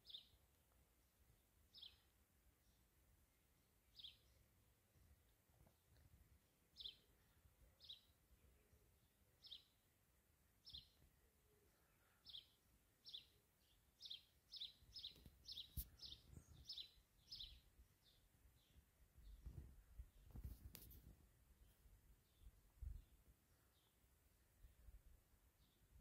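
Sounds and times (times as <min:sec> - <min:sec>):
bird chirping: 0:00.0 - 0:00.4, 0:01.7 - 0:02.8, 0:03.9 - 0:04.5, 0:06.7 - 0:09.9, 0:10.6 - 0:24.0.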